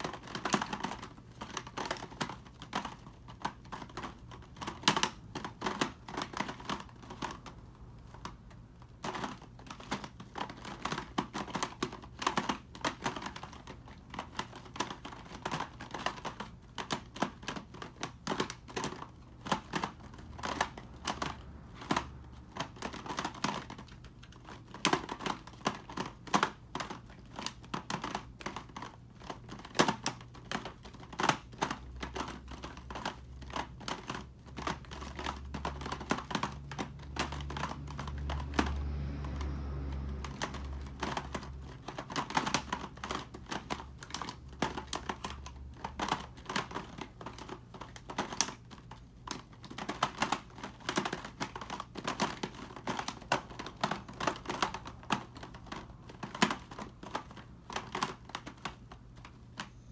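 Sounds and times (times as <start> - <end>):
puzzle cube layers clicking: 0.0 - 59.9.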